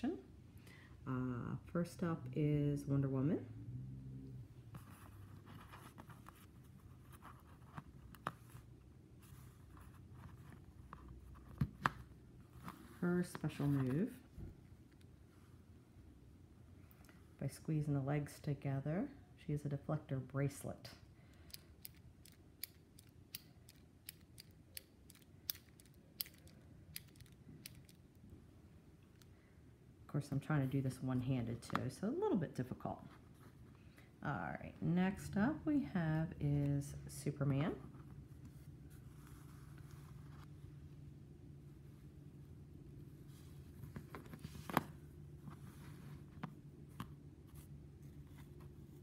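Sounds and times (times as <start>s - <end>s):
plastic figure rustling and scraping: 4.7s - 15.7s, 37.5s - 40.6s, 43.0s - 49.0s
toy mechanism clicking: 21.4s - 28.0s.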